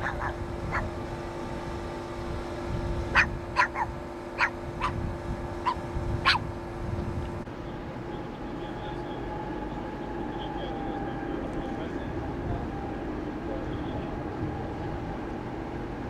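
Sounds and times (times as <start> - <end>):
dog barking: 0.0 - 0.9, 3.2 - 5.0, 5.6 - 6.4
steady low hum: 0.0 - 16.0.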